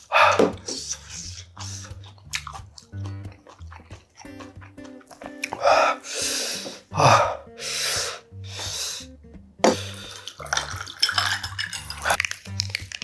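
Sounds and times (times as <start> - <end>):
hissing breaths through mouth: 0.0 - 2.2, 5.5 - 10.7
water poured into glass of ice: 10.1 - 13.0.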